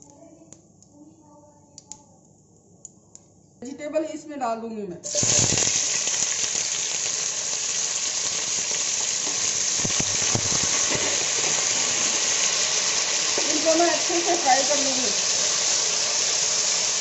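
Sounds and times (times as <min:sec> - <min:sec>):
vegetables sizzling in hot oil: 0:05.0 - 0:17.0.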